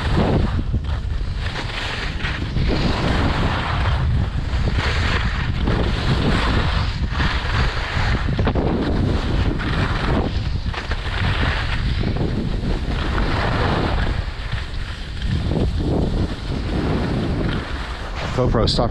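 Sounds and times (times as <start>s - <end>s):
skis scraping over snow: 0.0s - 18.9s
wind buffeting microphone: 0.0s - 18.9s.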